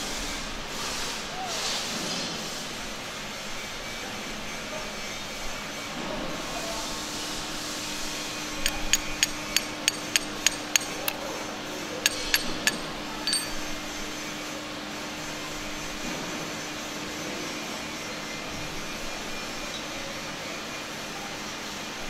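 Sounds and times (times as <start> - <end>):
sharp metallic clicks: 8.6 - 11.2, 12.0 - 13.7.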